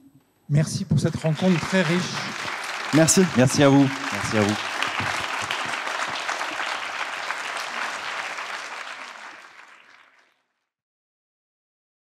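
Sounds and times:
audience applauding: 0:01.1 - 0:10.4.

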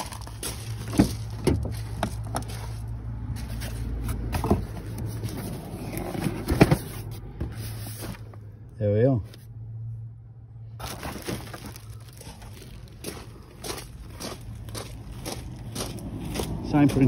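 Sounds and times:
knocks and clunks: 0:00.8 - 0:02.5.

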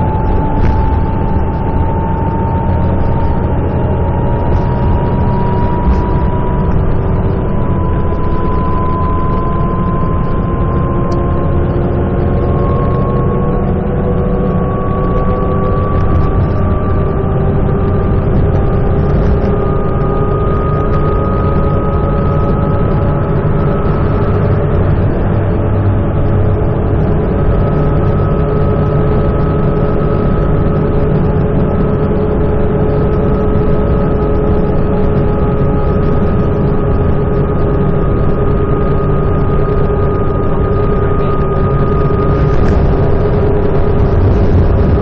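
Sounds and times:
road noise: 0:00.0 - 0:08.1, 0:40.8 - 0:45.0
bus engine droning: 0:00.0 - 0:45.0
thin whine: 0:00.0 - 0:45.0.

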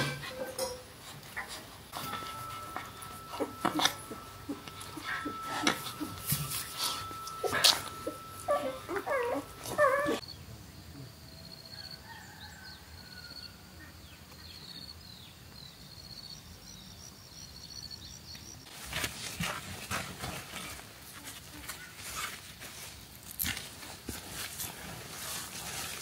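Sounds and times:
puppies whimpering and crying: 0:01.4 - 0:10.2.

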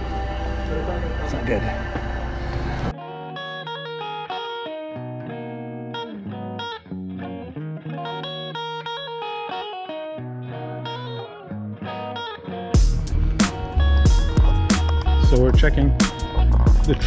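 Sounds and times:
electric guitar melody: 0:00.0 - 0:17.0
low bass notes: 0:12.8 - 0:17.0.

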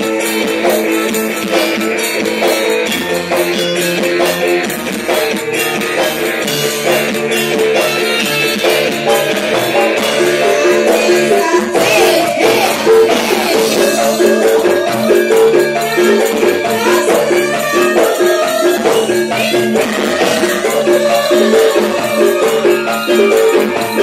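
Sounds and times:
gamelan playing: 0:00.0 - 0:24.0
shaken percussion: 0:00.0 - 0:24.0
women singing: 0:10.0 - 0:24.0.

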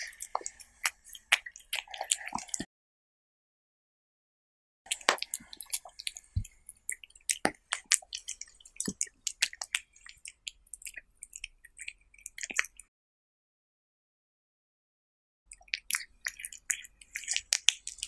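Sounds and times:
cat chewing and licking: 0:00.0 - 0:02.7, 0:04.9 - 0:12.9, 0:15.5 - 0:18.0.

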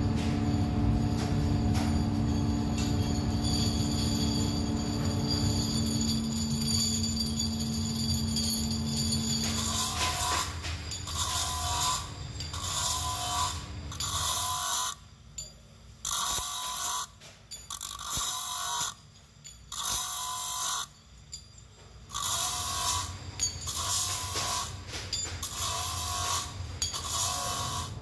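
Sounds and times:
motor hum: 0:00.0 - 0:15.0
grinding wheel grinding metal: 0:00.0 - 0:28.0.

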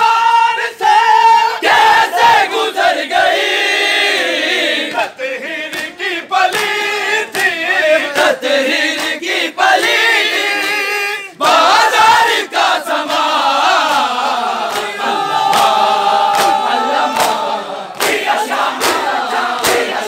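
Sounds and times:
men singing a lament in chorus: 0:00.0 - 0:20.0
hands slapping bare chests: 0:05.7 - 0:10.0, 0:13.0 - 0:20.0.

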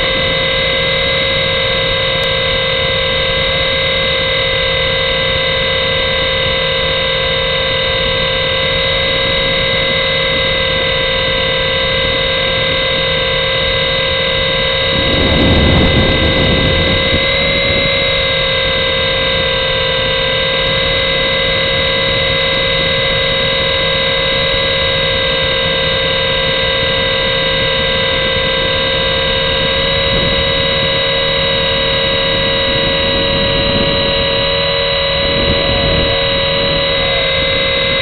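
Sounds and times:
toy helicopter rotor whine: 0:00.0 - 0:38.0.

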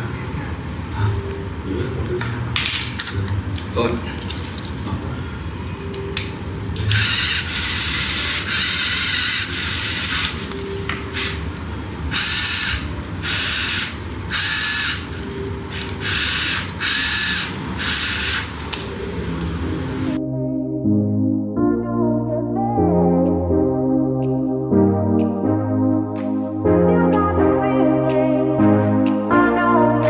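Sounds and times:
small servos whining: 0:06.9 - 0:10.5, 0:12.1 - 0:18.7.

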